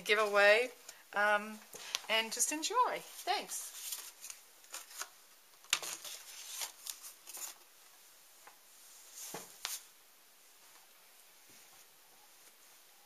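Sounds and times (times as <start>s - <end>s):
rustles of handling things: 3.0s - 9.9s.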